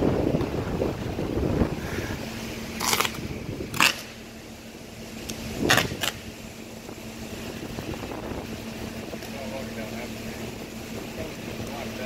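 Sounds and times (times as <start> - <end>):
wind gusting in hissing bursts: 0.0 - 9.1.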